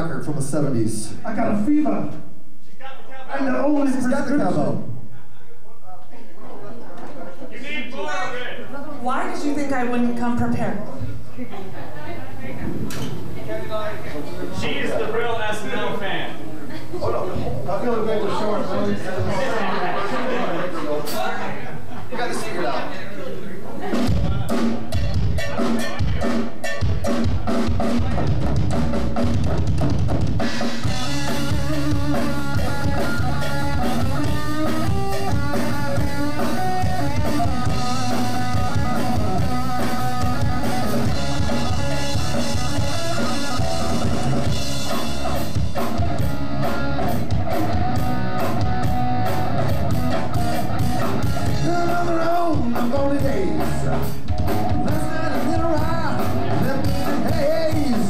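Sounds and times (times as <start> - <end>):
bass guitar: 23.8 - 58.0
drum kit beat: 23.8 - 58.0
electric guitars: 23.8 - 58.0.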